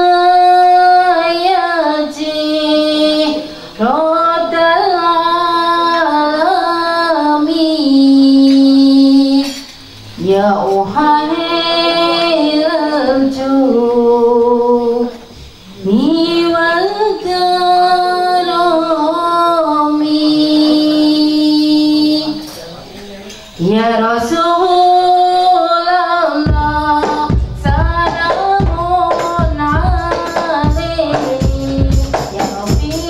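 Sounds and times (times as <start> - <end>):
woman singing: 0.0 - 9.6, 10.2 - 22.5, 23.6 - 33.0
singer breathing: 3.4 - 3.8.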